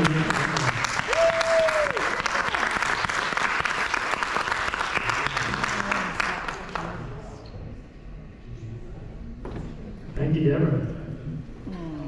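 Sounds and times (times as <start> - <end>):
crowd cheering: 0.0 - 6.9
audience clapping: 0.0 - 7.3.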